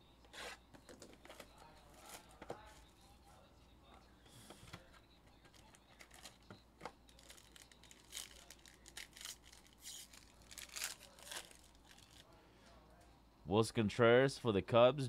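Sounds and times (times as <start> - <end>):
foil pack tearing and crinkling: 7.1 - 12.2.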